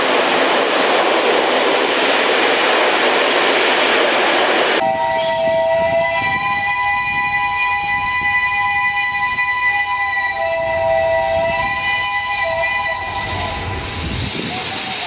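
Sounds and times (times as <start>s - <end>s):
train rumbling: 0.0s - 15.0s
steam locomotive whistle: 4.8s - 15.0s.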